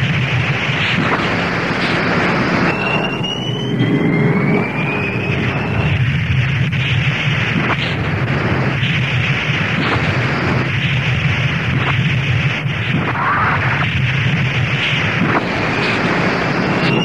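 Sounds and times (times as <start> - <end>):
explosion rumble with sharp cracks: 0.0 - 17.0
jet noise: 0.0 - 17.0
reversed rising whine: 0.6 - 10.8.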